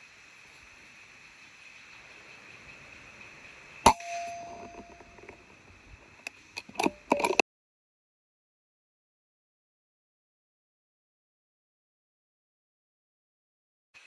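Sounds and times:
steady high drone: 1.7 - 6.1
air rifle shot: 3.9 - 4.8.

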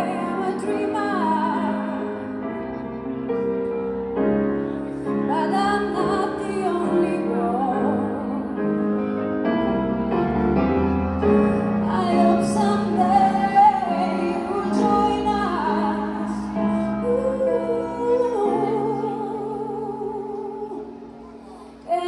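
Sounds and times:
woman singing with vibrato: 0.0 - 2.3, 5.3 - 8.7, 11.8 - 22.0
piano accompaniment: 0.0 - 22.0.

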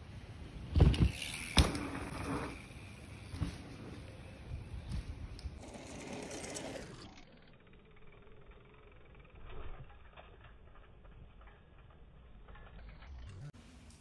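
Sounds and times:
tyres on dirt: 0.4 - 7.5
bicycle freehub ticking: 1.1 - 14.0.

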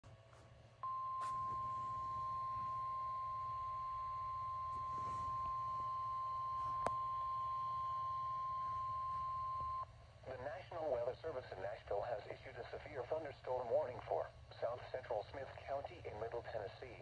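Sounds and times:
steady high alarm tone: 0.8 - 9.8.

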